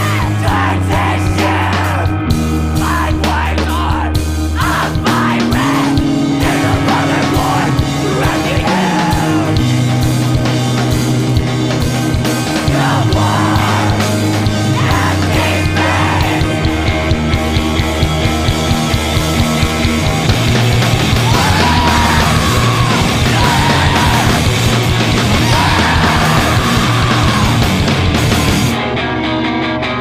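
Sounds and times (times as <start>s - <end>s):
dense drumming: 0.0s - 28.8s
distorted guitars and bass: 0.0s - 30.0s
screamed vocals: 2.8s - 9.5s, 14.8s - 16.4s, 21.1s - 24.6s, 25.2s - 27.8s.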